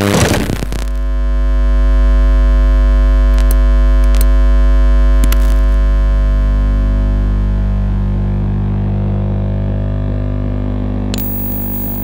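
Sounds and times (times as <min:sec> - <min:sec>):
sharp electric crackles: 0:00.0 - 0:01.1
high-voltage electrical hum: 0:00.0 - 0:12.0.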